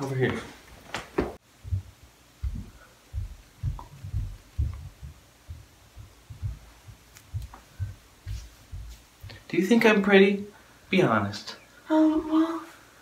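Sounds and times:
dull low thumps: 1.4 - 9.5.

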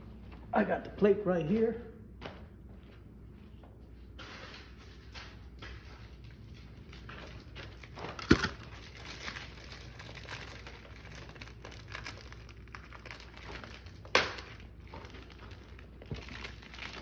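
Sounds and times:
plastic crinkling and rustling: 6.2 - 17.0.

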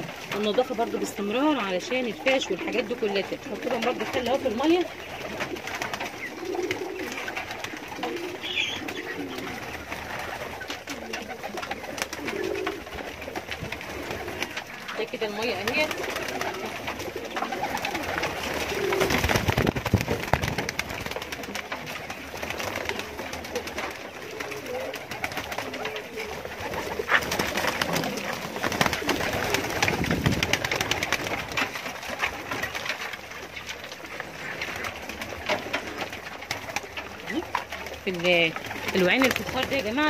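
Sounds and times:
pecking and feet scuffling on straw: 0.0 - 19.4
pigeons cooing: 0.0 - 40.0
wings flapping: 0.0 - 40.0.

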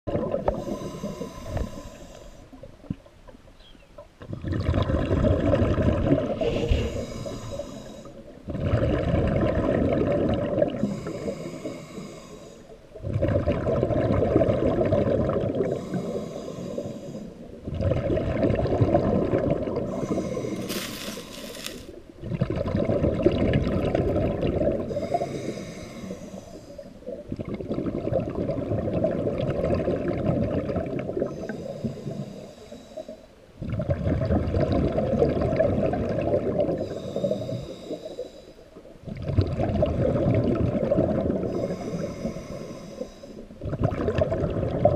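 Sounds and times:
bubbling exhale underwater: 0.1 - 3.1, 4.2 - 12.2, 13.0 - 26.4, 27.0 - 32.1, 33.6 - 37.9, 39.0 - 42.6, 43.4 - 44.9
regulator hissing inhale: 0.6 - 2.5, 6.4 - 8.2, 10.8 - 12.8, 15.7 - 17.5, 19.9 - 21.9, 24.9 - 27.0, 31.3 - 33.3, 36.8 - 38.7, 41.5 - 43.5.

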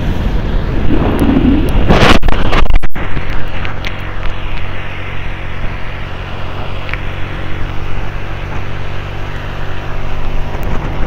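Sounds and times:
wind rush: 0.0 - 4.8
motorcycle engine running: 0.0 - 11.0
tyres on wet road: 0.0 - 11.0.

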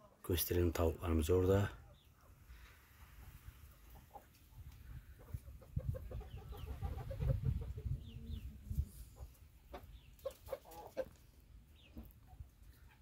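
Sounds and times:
hens and roosters clucking: 1.5 - 13.0.

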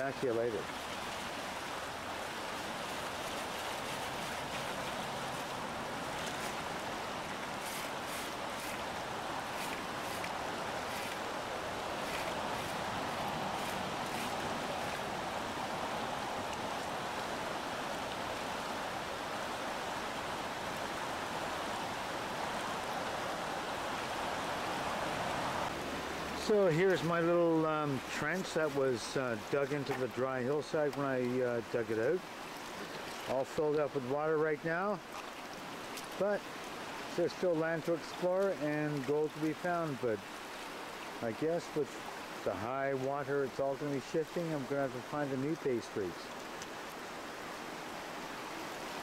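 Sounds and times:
river rushing over gravel: 0.0 - 49.0.

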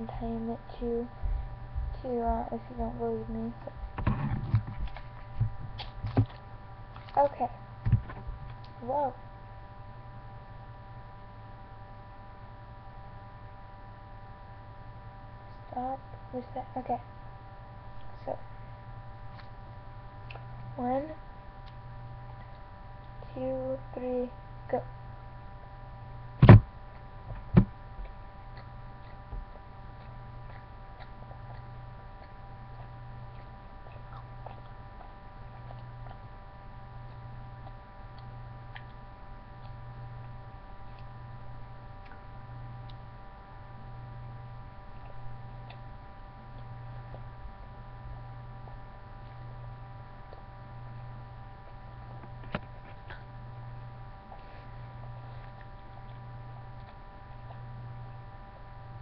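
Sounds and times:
electrical hum: 0.0 - 59.0
sharp knock: 26.4 - 26.7.

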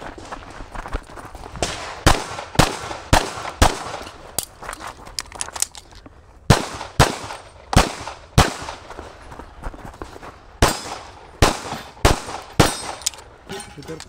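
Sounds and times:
pistol shots: 1.6 - 4.1, 6.5 - 8.8, 10.6 - 13.1.

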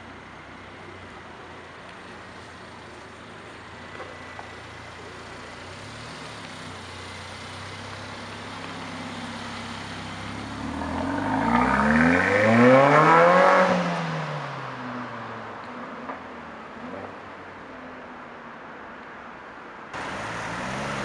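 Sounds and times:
car accelerating hard: 9.9 - 14.2, 20.0 - 21.0.

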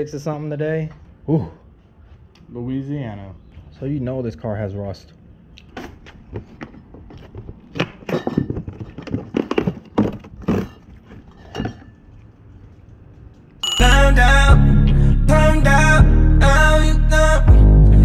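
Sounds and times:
glass bottles clinking in a case: 8.0 - 9.8, 10.4 - 12.1
loud music: 13.7 - 18.0.

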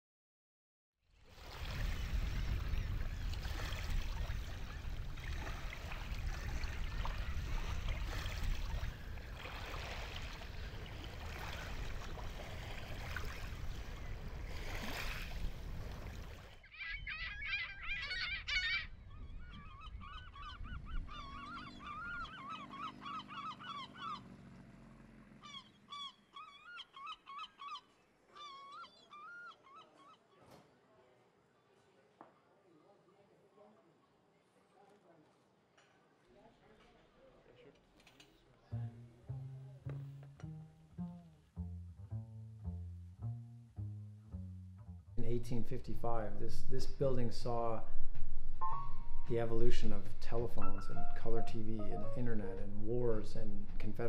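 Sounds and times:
wind: 1.0 - 42.1, 44.8 - 54.0
waves on a lakeshore: 1.2 - 16.7
waterbirds calling harshly: 1.8 - 24.4, 25.4 - 30.4.

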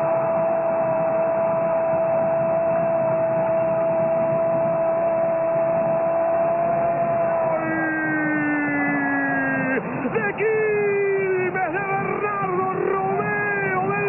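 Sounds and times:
stadium crowd noise: 0.0 - 14.0
commentator's long goal cry: 6.2 - 14.0.

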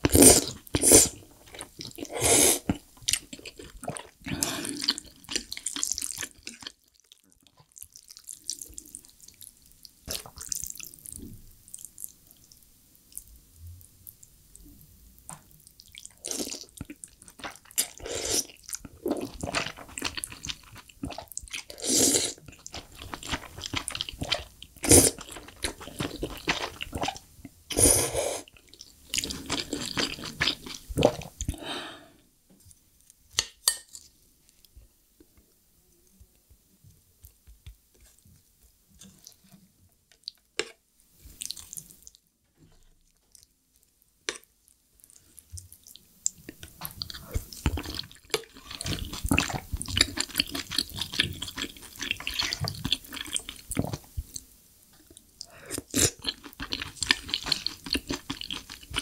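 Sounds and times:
slurping and chewing noodles: 0.0 - 6.8, 15.9 - 31.6, 45.1 - 54.4, 55.1 - 59.0.

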